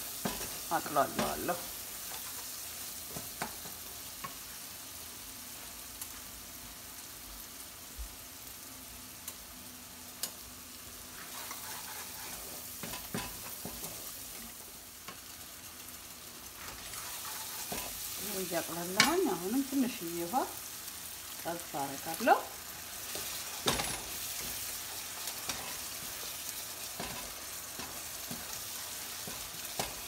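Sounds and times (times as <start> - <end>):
onions sizzling in a frying pan: 0.0 - 30.0
wooden spoon scraping a pan: 11.1 - 14.5, 16.4 - 19.5.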